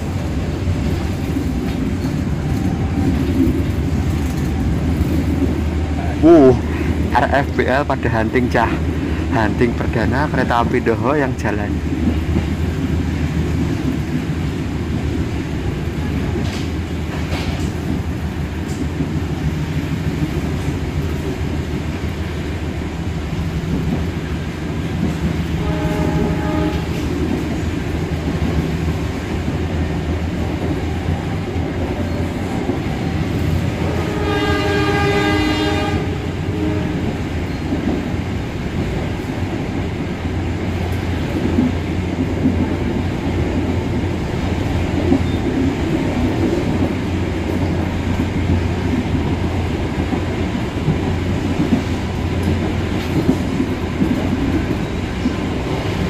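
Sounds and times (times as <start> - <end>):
train rumbling at speed: 0.0 - 56.0
locomotive horn blasts: 25.6 - 27.0, 33.8 - 37.1.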